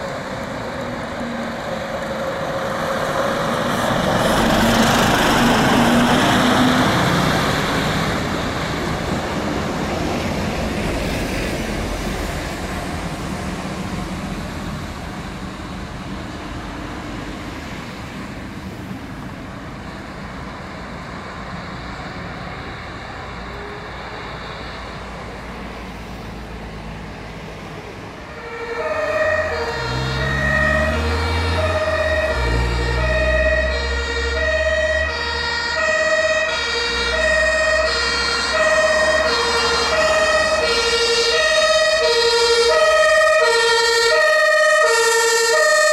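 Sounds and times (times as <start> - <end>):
fire truck engine: 0.0 - 45.9
two-tone siren: 28.3 - 45.9.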